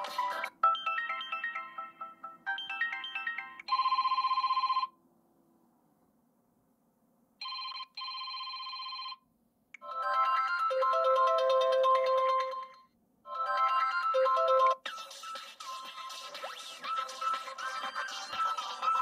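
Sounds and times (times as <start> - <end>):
electronic ringtone melodies: 0.0 - 4.9, 9.8 - 19.0.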